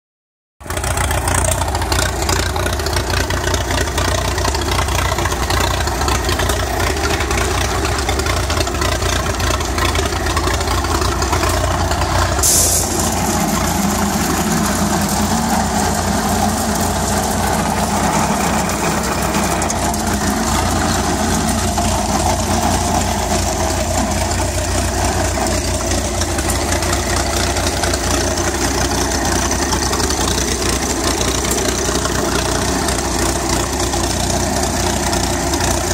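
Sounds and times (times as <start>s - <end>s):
tractor engine running: 0.6s - 35.9s
grinder cracking corn: 10.4s - 24.2s.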